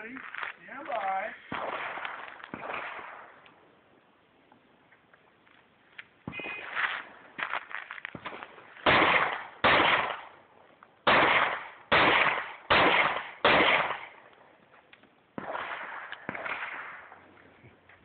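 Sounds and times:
pistol shots: 1.0 - 3.5, 8.2 - 10.4, 11.0 - 14.2, 15.4 - 17.3.

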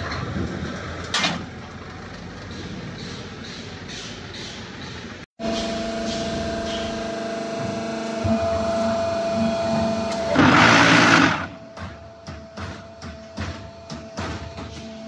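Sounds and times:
harsh machine burst: 10.3 - 11.6.

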